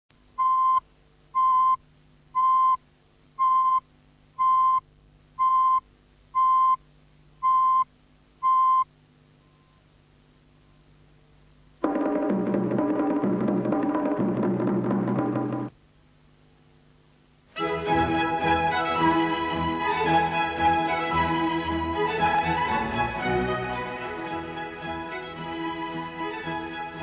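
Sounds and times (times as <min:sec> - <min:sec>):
countdown beeps: 0:05.4 - 0:05.8, 0:07.4 - 0:08.9
music with drums: 0:11.8 - 0:15.8.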